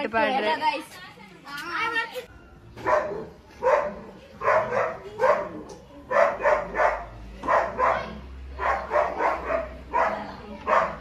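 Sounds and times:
dog barking: 2.8s - 11.0s.

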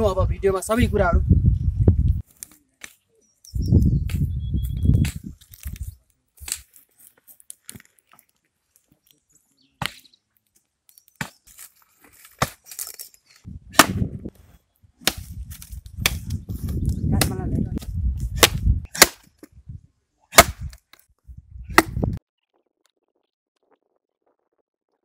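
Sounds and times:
axe chopping wood: 9.8s - 10.0s, 12.2s - 12.9s, 13.7s - 14.2s, 15.0s - 16.4s, 17.1s - 17.4s, 18.3s - 19.5s, 20.3s - 20.9s, 21.7s - 22.2s.

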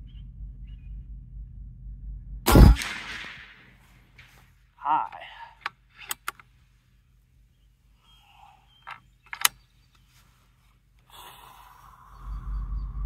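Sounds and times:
air rifle action clicking: 5.1s - 6.6s, 8.8s - 9.7s.

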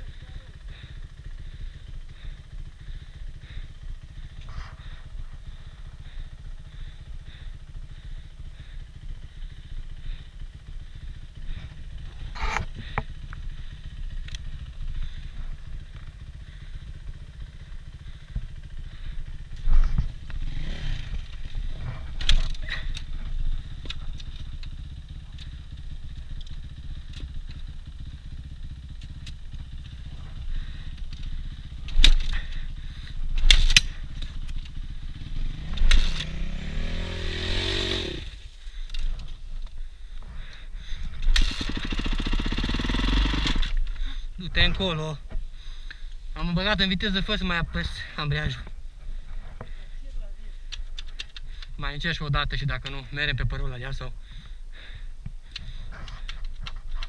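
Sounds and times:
motorcycle engine idling: 0.0s - 57.0s.

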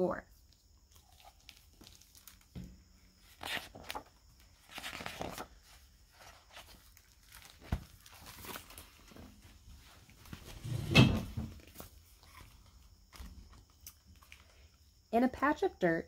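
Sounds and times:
book pages rustling: 0.9s - 2.5s, 3.2s - 10.6s.

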